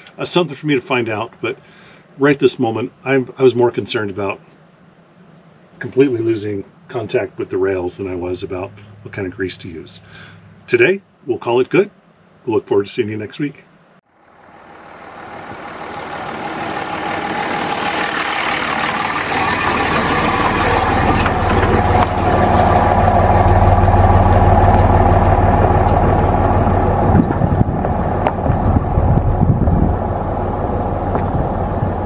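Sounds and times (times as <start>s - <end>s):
truck engine pulling away on gravel: 14.1s - 32.0s.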